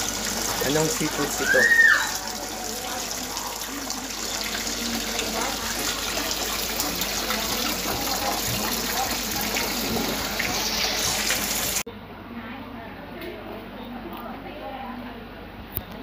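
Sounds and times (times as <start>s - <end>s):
water running and splashing: 0.0s - 11.8s
faint voices: 0.1s - 16.0s.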